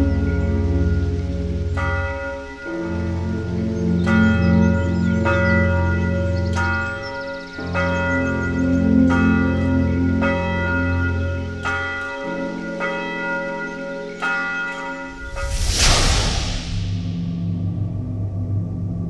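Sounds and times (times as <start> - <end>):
low sustained drone: 0.0 - 11.6, 15.1 - 19.0
loud rushing whoosh: 15.1 - 18.1.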